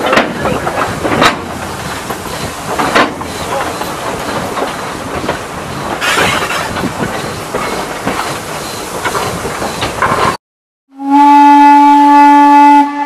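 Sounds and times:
steam locomotive rattling: 0.0s - 10.4s
wheels clanking on rails: 0.0s - 10.4s.

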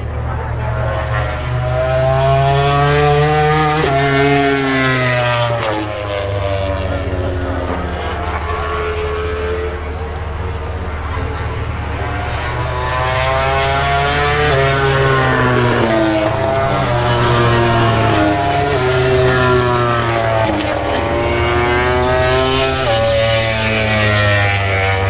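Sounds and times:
racing motorcycles passing: 0.0s - 25.0s.

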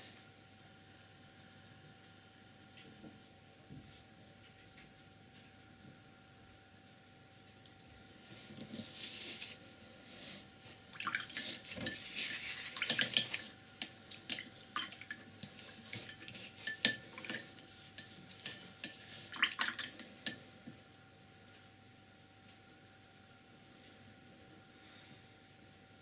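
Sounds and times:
paintbrush swishing in water: 10.6s - 13.5s
brush clinking in glass jar: 16.0s - 19.0s.

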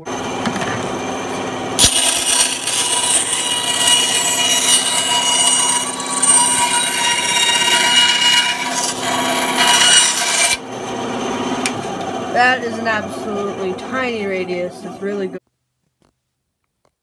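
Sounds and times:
band saw motor hum: 0.0s - 15.4s
saw blade cutting wood: 1.8s - 10.6s.

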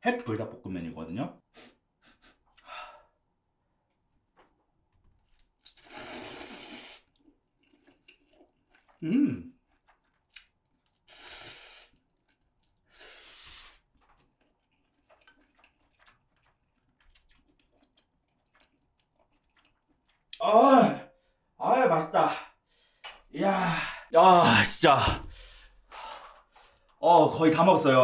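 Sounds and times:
person slurping noodles: 5.7s - 10.1s, 10.9s - 12.2s
chewing clicks: 14.0s - 20.4s.

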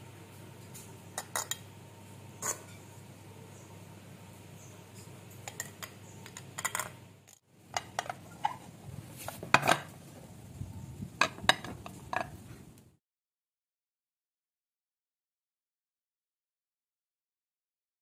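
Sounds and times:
metal spoon clinking on ceramic: 1.2s - 1.7s, 5.0s - 6.9s.

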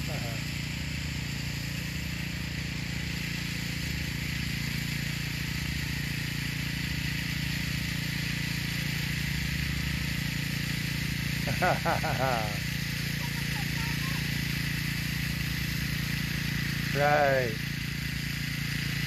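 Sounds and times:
steady hiss: 7.0s - 19.0s
engine humming: 7.1s - 19.0s.

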